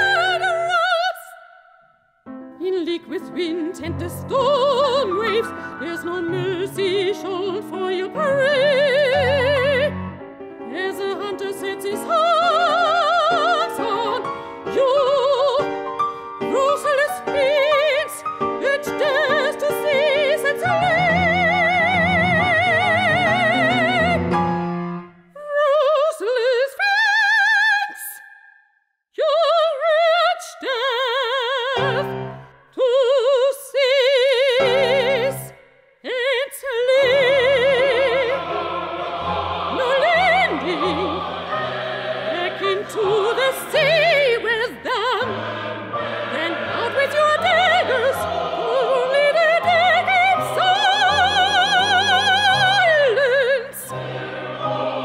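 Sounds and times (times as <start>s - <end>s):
operatic soprano singing: 0.0s - 1.8s, 2.6s - 24.4s, 25.3s - 28.4s, 29.2s - 55.0s
piano accompaniment: 2.3s - 25.3s, 37.0s - 55.0s.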